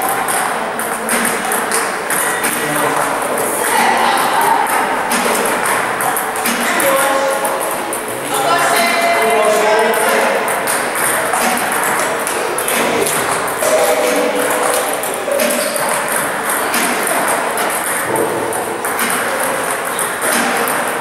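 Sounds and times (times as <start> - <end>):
table tennis balls clicking: 0.0 - 21.0
paddle striking ball: 3.6 - 7.5, 10.0 - 21.0.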